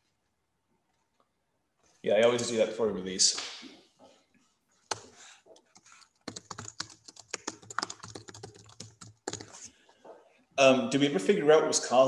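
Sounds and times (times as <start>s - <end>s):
typing on computer keyboard: 4.9s - 5.1s, 5.7s - 9.6s.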